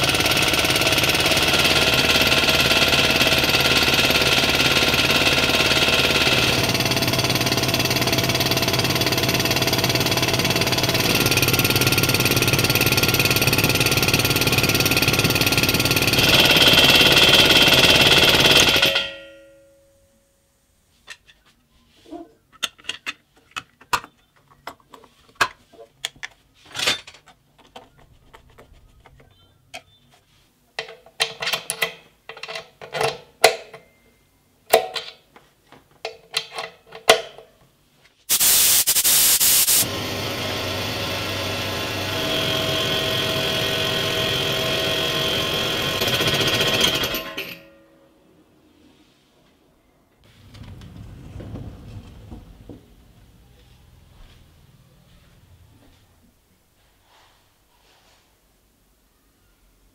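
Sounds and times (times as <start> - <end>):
air compressor running: 0.0 - 19.1, 38.3 - 47.6
air hiss: 38.3 - 39.9.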